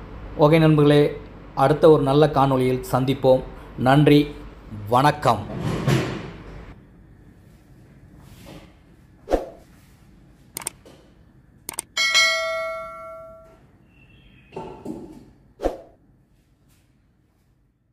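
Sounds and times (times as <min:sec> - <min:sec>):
mouse clicks: 0:10.6 - 0:10.8
bell ding: 0:12.0 - 0:13.6.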